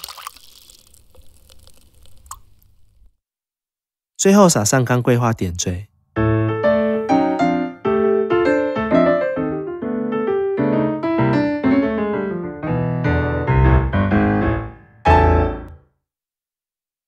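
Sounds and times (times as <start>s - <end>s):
piano music: 6.2s - 15.8s.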